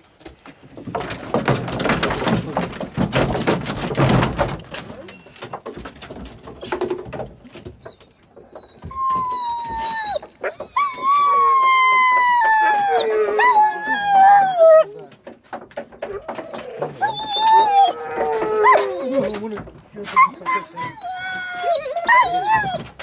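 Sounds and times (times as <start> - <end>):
dogs scrambling and thumping: 0.0 - 23.0
hound howling: 8.9 - 15.1, 16.1 - 23.0.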